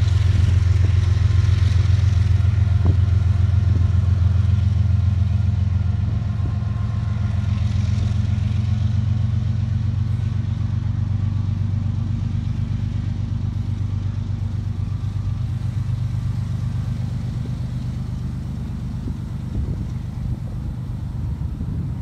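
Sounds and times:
diesel locomotive engine drone: 0.0s - 22.0s.

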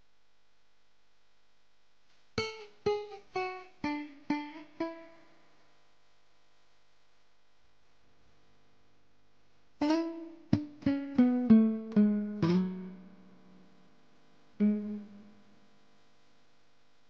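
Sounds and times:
plucked guitar notes: 2.4s - 5.2s, 9.8s - 13.6s, 14.6s - 15.5s.

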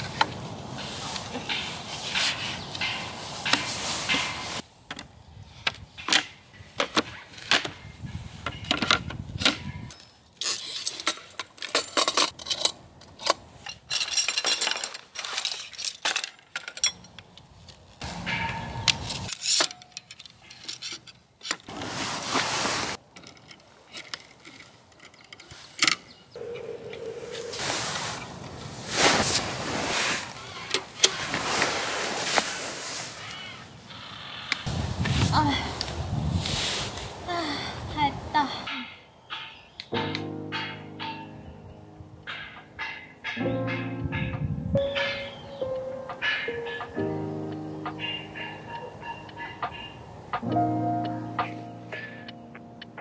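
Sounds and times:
small metal parts clinking: 8.5s - 17.5s, 18.4s - 21.7s, 23.1s - 26.2s
fabric bag rustling: 21.7s - 23.0s, 27.1s - 33.2s.

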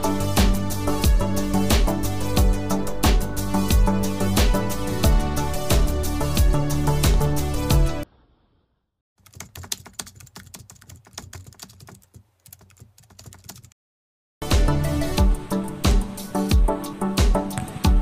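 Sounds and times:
background music: 0.0s - 8.0s, 14.4s - 18.0s
keyboard typing: 9.2s - 13.8s.

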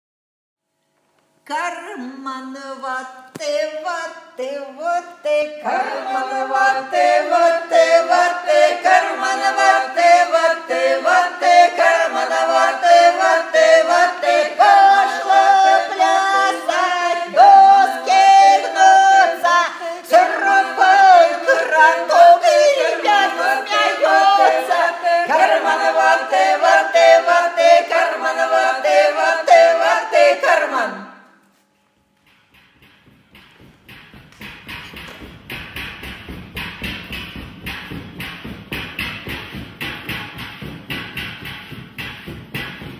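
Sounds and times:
women singing a cappella: 1.5s - 31.2s.

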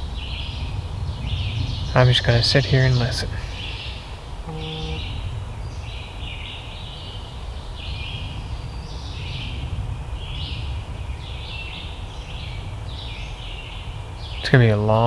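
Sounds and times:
woodland birdsong: 0.0s - 15.0s
brief low tone: 4.5s - 5.2s.

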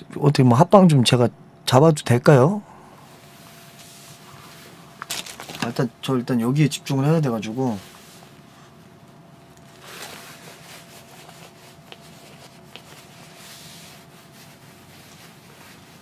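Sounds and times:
clothing rustling: 3.0s - 5.8s, 7.7s - 16.0s.

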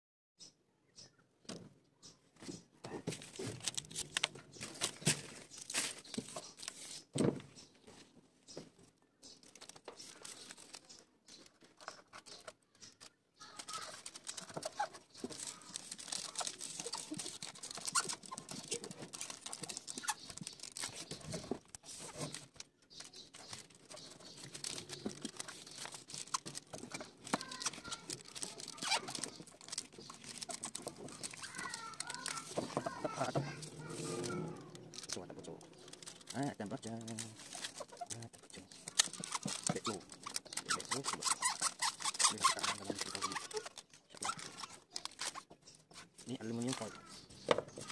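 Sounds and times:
aluminium foil crinkling: 3.2s - 7.1s, 9.2s - 47.9s
sharp crackles: 9.2s - 47.9s.

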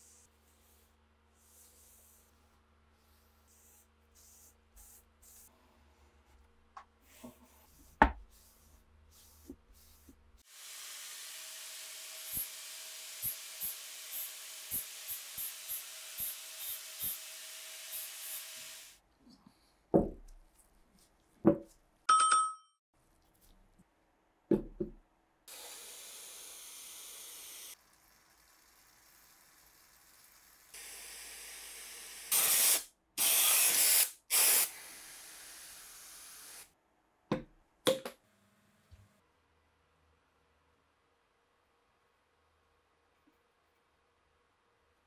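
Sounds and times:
spray can hissing: 32.3s - 35.5s
knocks of metal and wood parts: 37.3s - 38.2s.

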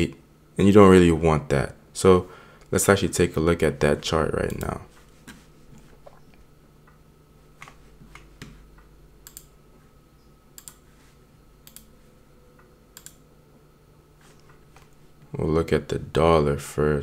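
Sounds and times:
faint steady hum: 0.0s - 17.0s
computer mouse clicking: 4.5s - 4.8s, 9.2s - 9.6s, 10.6s - 10.8s, 11.6s - 11.9s, 13.0s - 13.2s.

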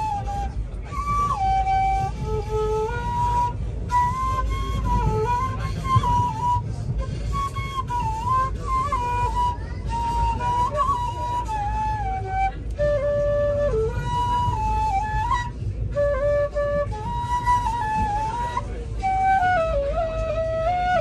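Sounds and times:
bamboo flute melody: 0.0s - 21.0s
low steady rumble: 0.0s - 21.0s
breaths: 6.6s - 7.4s.

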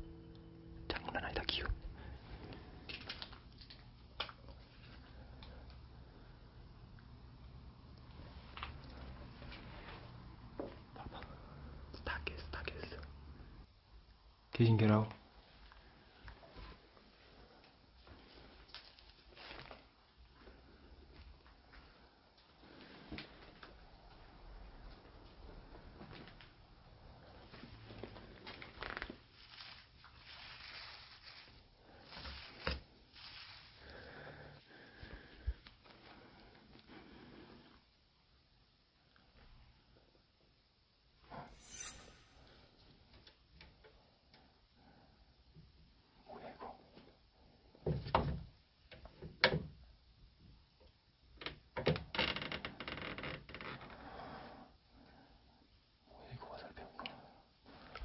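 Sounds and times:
rustling and scraping of paper debris: 29.4s - 33.6s.

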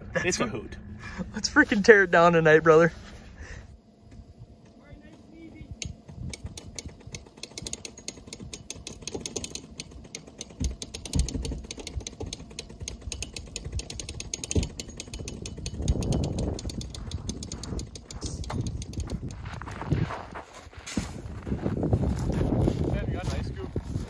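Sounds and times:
boots crunching on snow: 19.4s - 24.0s
scuffing rustle: 19.4s - 24.0s.

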